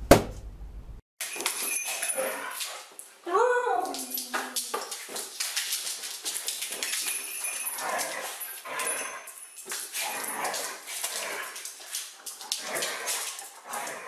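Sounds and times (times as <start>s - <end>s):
clicks and scuffles on floor: 3.8s - 14.0s.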